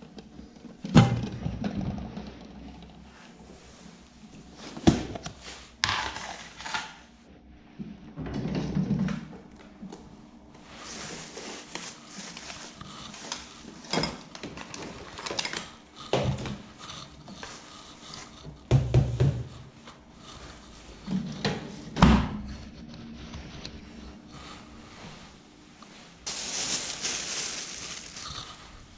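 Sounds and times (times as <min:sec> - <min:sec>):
plastic bag rustling: 0:10.8 - 0:15.7, 0:26.0 - 0:28.9.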